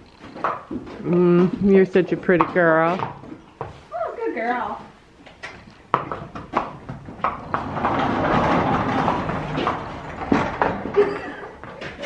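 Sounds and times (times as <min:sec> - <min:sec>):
hooves knocking on barn floor: 0:00.0 - 0:12.0
loud rustling: 0:07.4 - 0:11.1.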